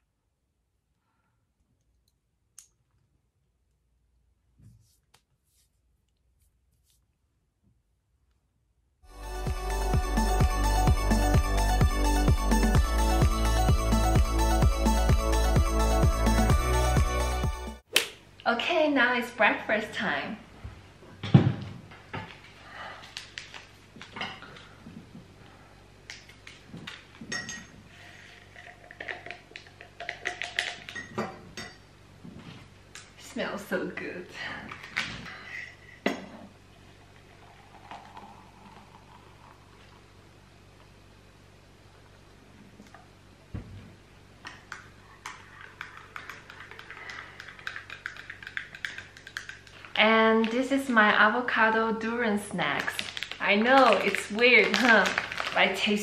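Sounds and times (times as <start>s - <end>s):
coffee packet crinkling: 52.7s - 56.0s.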